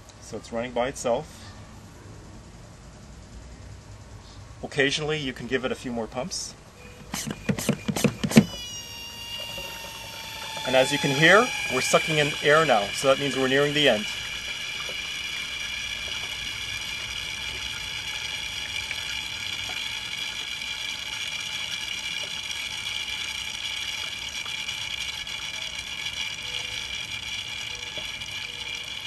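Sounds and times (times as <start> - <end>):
oil extractor sucking air hiss: 6.8 - 29.0.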